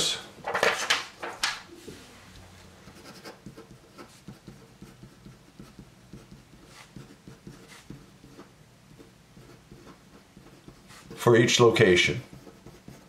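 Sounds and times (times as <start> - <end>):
pen writing on paper: 2.9 - 11.2, 12.2 - 13.0.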